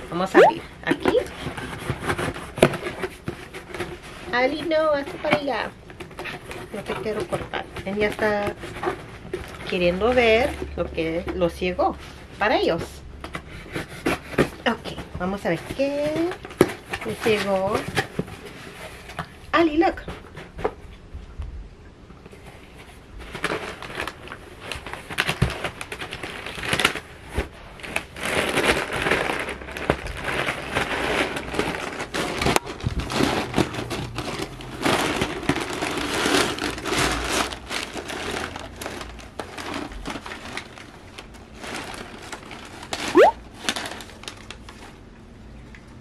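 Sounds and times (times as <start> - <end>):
paper crinkling and rustling: 22.3 - 45.1.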